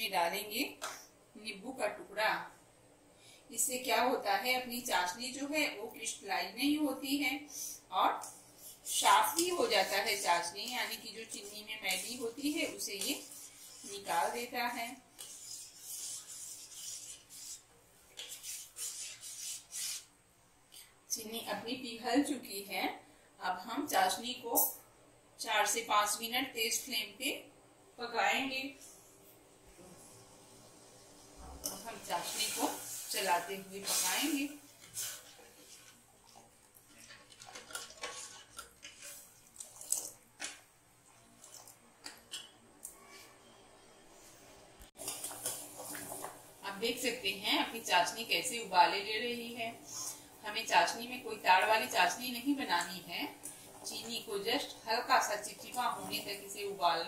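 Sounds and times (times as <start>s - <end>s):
syrup pouring: 35.8s - 40.2s
metal spoon scraping pot: 36.9s - 39.3s.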